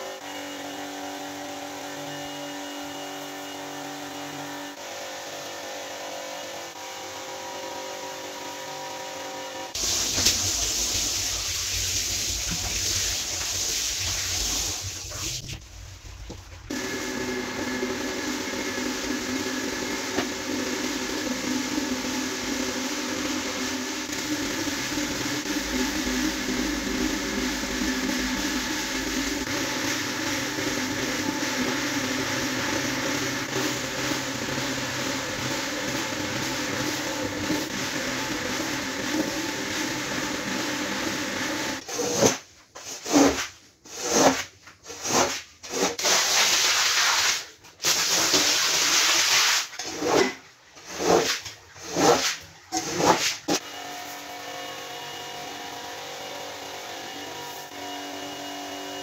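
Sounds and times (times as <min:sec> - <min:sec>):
floor scrubber motor humming: 0:00.0 - 0:15.0, 0:16.6 - 0:42.2, 0:52.8 - 0:59.0
spinning brush scrubbing rug: 0:09.8 - 0:53.6.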